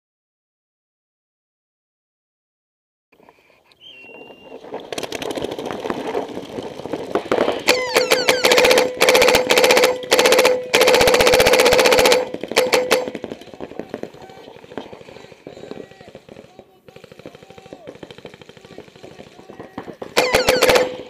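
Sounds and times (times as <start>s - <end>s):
paintball shots cracking: 4.2s - 21.0s
paintball gun firing rapid bursts: 4.4s - 21.0s.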